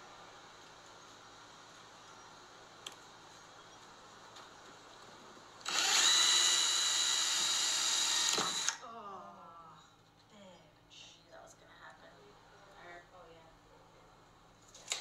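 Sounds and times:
power drill boring into plywood: 0:05.6 - 0:08.8.

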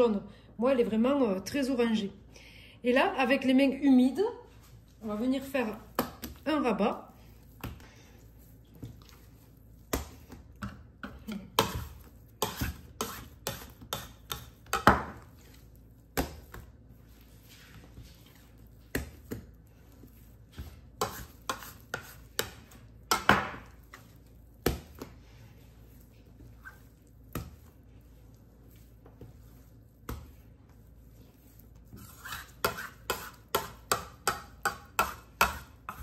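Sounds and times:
dough slapping on counter: 0:05.6 - 0:06.6, 0:08.7 - 0:36.0.

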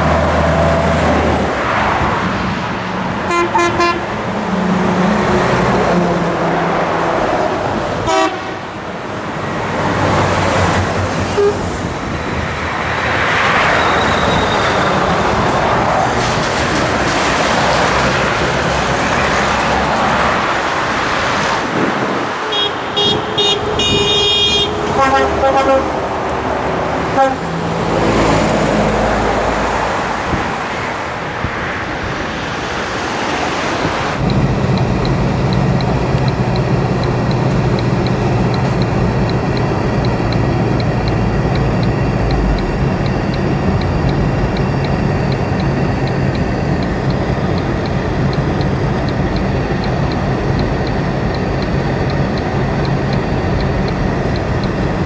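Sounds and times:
trucks passing on motorway: 0:00.0 - 0:55.0
low engine drone inside vehicle: 0:34.0 - 0:55.0
faint regular ticking: 0:34.2 - 0:55.0.

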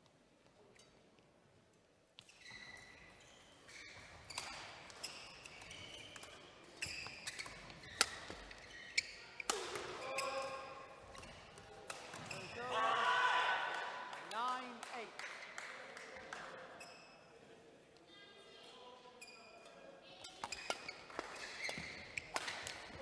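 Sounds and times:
shoes squeaking on floor: 0:02.2 - 0:12.7, 0:19.1 - 0:23.0
rackets striking shuttlecock: 0:09.4 - 0:10.3, 0:20.2 - 0:22.9.

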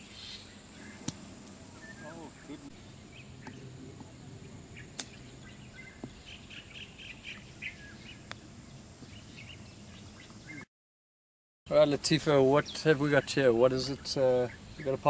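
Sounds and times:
high steady hiss: 0:00.0 - 0:10.6, 0:11.7 - 0:15.0
birds chirping: 0:00.0 - 0:10.7, 0:11.7 - 0:15.0
golf club striking ball: 0:01.0 - 0:01.5, 0:04.8 - 0:05.3.

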